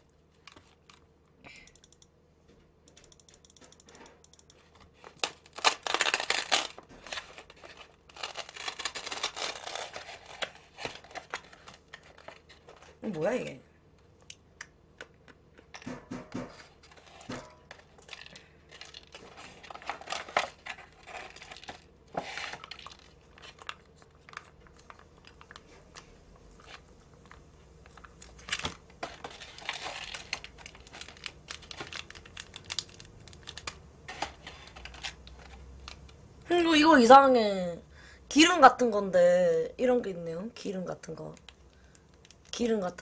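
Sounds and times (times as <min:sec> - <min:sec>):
plastic and foil crinkling: 0:04.6 - 0:13.6, 0:16.6 - 0:36.2
sachet tearing open: 0:05.0 - 0:13.0, 0:26.6 - 0:36.2.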